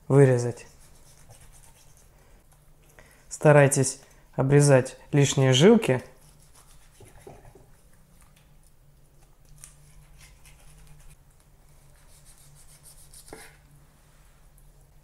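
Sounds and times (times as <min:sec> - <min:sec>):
knife slicing and scraping meat: 0:00.6 - 0:02.1, 0:06.1 - 0:07.6, 0:09.5 - 0:11.2, 0:12.0 - 0:13.6.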